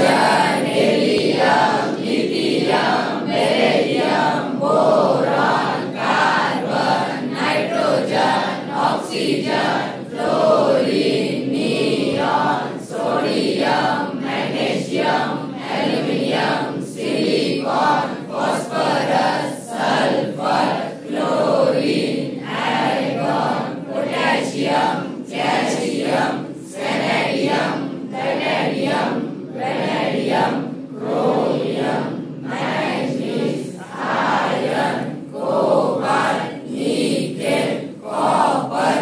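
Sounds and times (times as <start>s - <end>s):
students chanting in unison: 0.0s - 39.0s.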